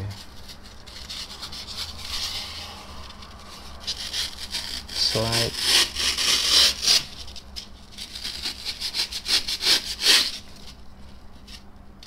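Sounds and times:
cutter blade scraping through foam: 0.5s - 7.2s, 8.0s - 10.5s.

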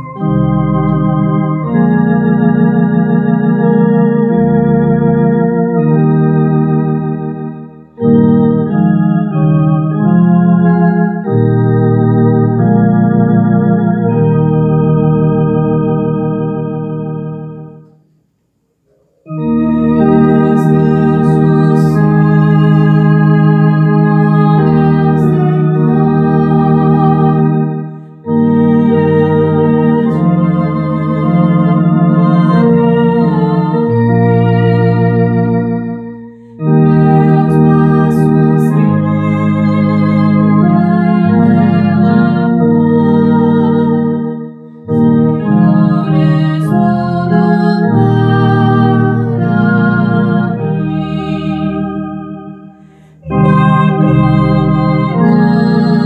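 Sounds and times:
electronic organ playing a hymn: 0.0s - 18.1s, 19.1s - 56.0s.

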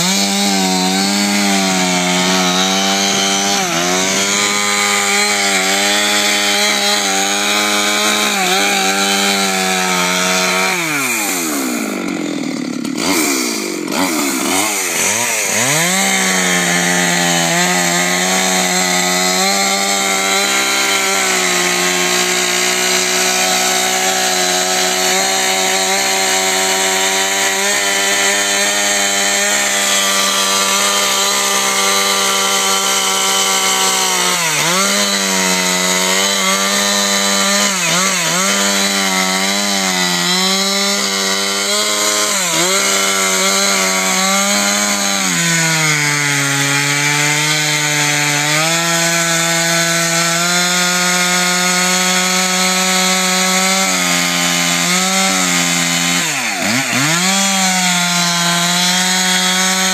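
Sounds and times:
chainsaw cutting ice: 0.0s - 59.9s.

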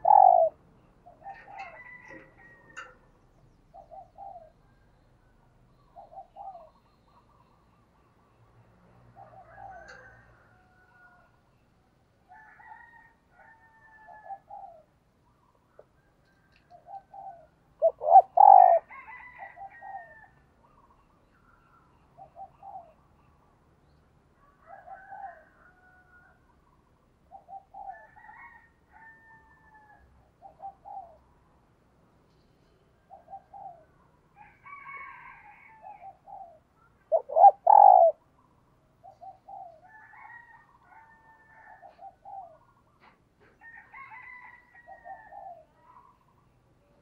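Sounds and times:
dove cooing: 0.0s - 2.9s, 3.7s - 4.6s, 6.0s - 6.8s, 14.0s - 14.9s, 16.7s - 20.8s, 22.2s - 23.0s, 27.3s - 28.6s, 30.4s - 31.2s, 33.0s - 34.0s, 34.7s - 38.3s, 39.0s - 43.2s, 44.0s - 46.2s.

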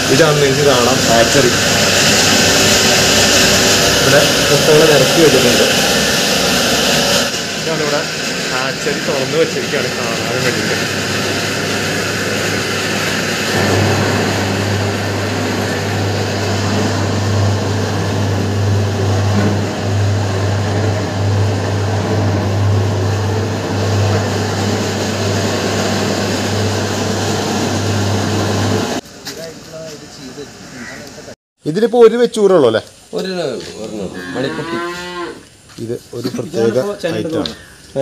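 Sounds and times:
incubator fans whirring: 0.0s - 35.7s.

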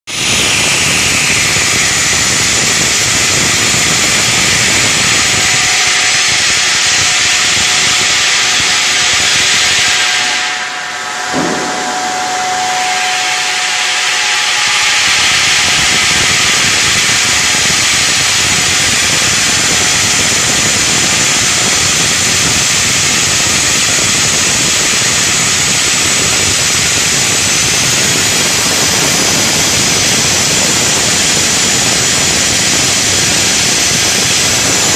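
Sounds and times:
short rising whine: 0.1s - 22.2s
stone saw grinding: 0.1s - 34.9s.

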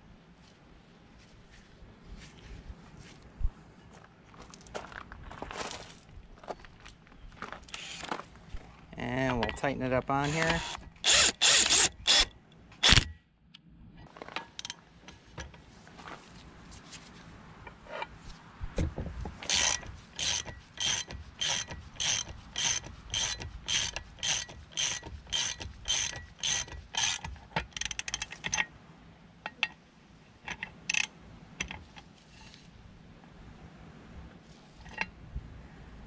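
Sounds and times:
impact wrench burst: 10.2s - 13.2s, 19.4s - 28.2s
socket ratchet clicking: 19.4s - 28.7s, 30.5s - 31.8s.

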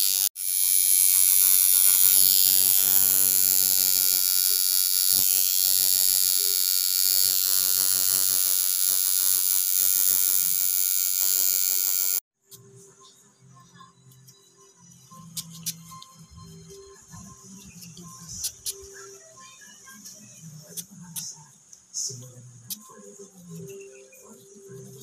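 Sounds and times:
tattoo machine buzzing: 0.0s - 12.2s.

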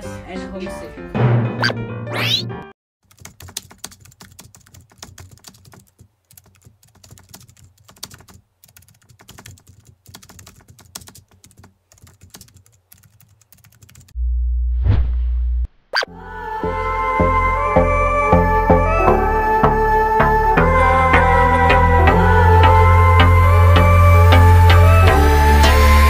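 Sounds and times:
low bass tone: 14.2s - 21.0s.

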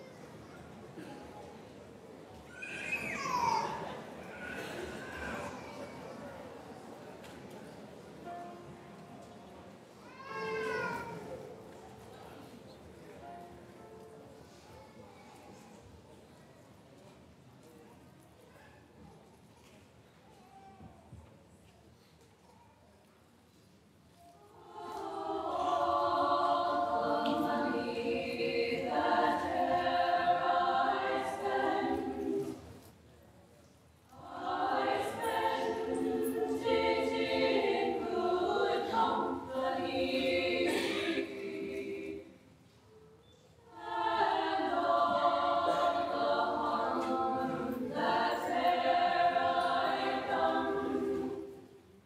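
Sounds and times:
women's choir singing a cappella: 24.5s - 32.9s, 34.1s - 42.6s, 43.6s - 52.0s.

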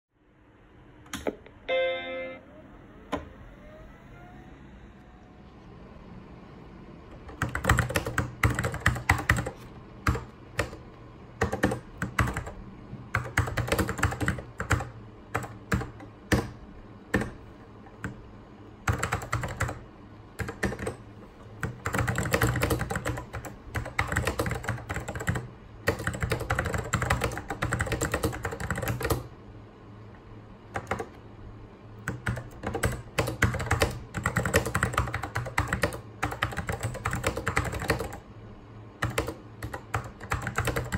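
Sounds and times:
typing on mechanical keyboard: 7.2s - 10.8s, 11.4s - 17.4s, 18.9s - 19.8s, 20.4s - 21.0s, 21.6s - 29.3s, 30.8s - 31.2s, 32.0s - 38.2s, 39.0s - 40.9s.

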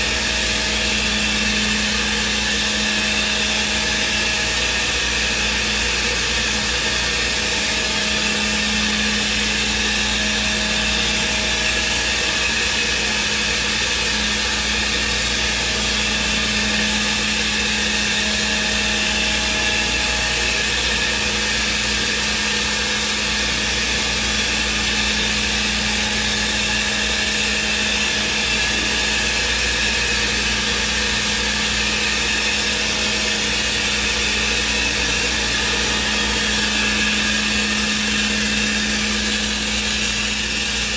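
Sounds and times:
cnc router humming and hissing: 0.0s - 40.9s.

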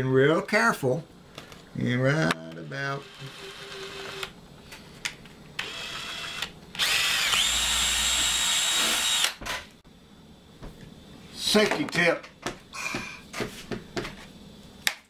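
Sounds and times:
cordless drill drilling plastic: 5.6s - 9.4s.

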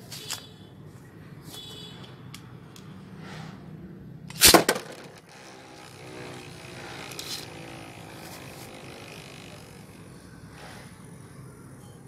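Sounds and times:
spinning top whirring: 4.3s - 10.2s.

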